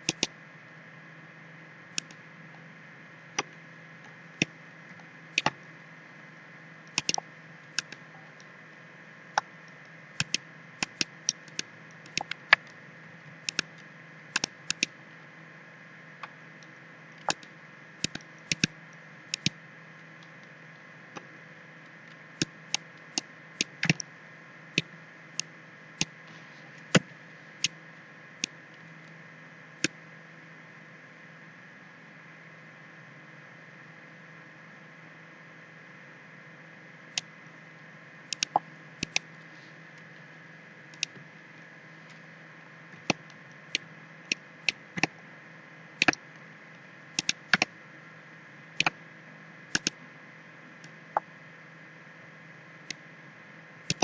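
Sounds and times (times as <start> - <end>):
computer mouse clicking: 0.0 - 0.3, 6.9 - 8.0, 10.2 - 12.8, 13.4 - 14.9, 17.2 - 18.7, 19.3 - 19.6, 38.3 - 39.2, 47.2 - 47.7, 49.8 - 50.0
steady hiss and faint hum: 0.0 - 54.0.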